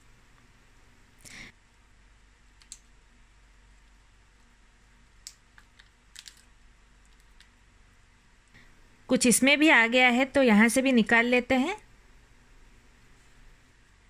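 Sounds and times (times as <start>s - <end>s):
crab shell clicks and crackles: 2.6s - 2.9s, 5.2s - 7.6s.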